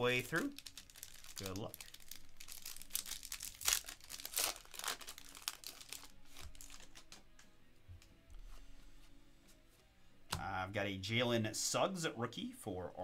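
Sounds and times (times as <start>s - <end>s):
plastic wrapper crinkling and tearing: 0.0s - 7.2s.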